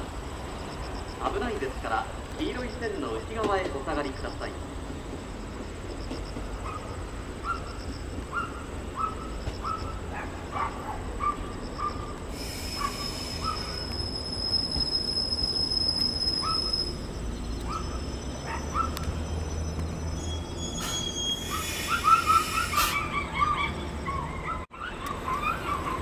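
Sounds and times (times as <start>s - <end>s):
train rolling with low rumble: 0.0s - 26.0s
high brake squeal: 5.5s - 26.0s.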